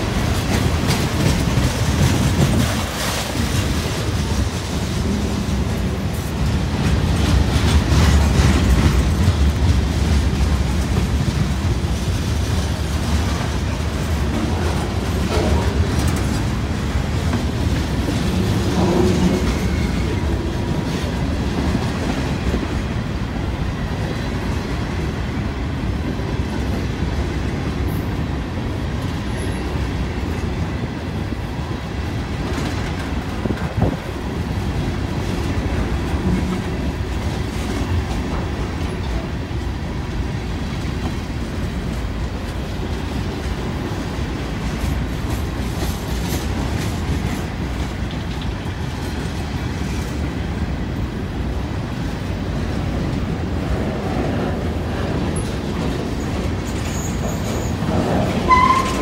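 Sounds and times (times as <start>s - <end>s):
clacking over rail joints: 0.0s - 23.0s
freight train wheels rumbling: 0.0s - 59.0s.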